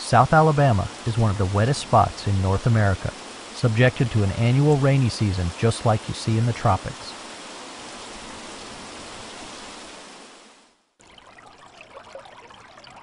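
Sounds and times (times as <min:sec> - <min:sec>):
crackling water patter: 0:00.0 - 0:07.2, 0:11.0 - 0:13.0
falling rain hiss: 0:00.0 - 0:10.7.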